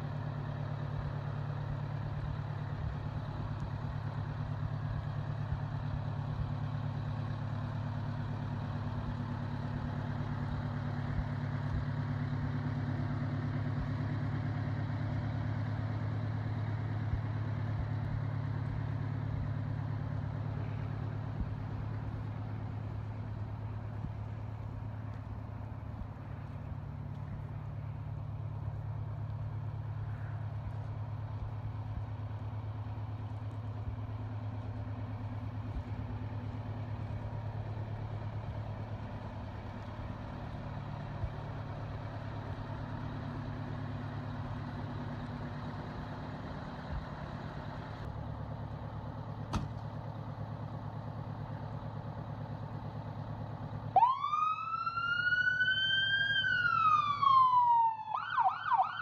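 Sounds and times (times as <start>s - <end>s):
fire truck engine idling: 0.0s - 59.0s
siren wailing: 54.0s - 59.0s.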